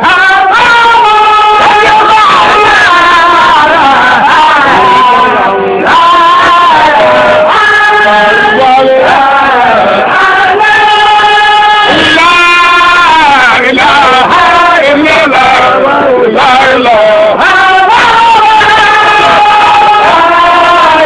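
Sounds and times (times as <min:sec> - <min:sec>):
voices chanting: 0:00.0 - 0:21.0.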